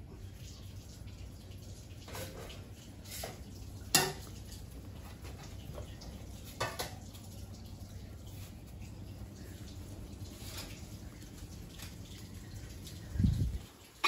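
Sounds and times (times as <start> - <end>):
dishes and utensils clinking: 2.0 - 7.2.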